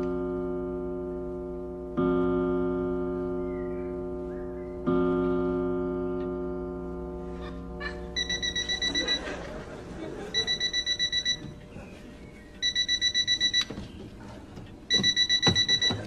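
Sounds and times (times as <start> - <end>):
alarm clock beeping: 8.1 - 14.0, 14.8 - 16.0.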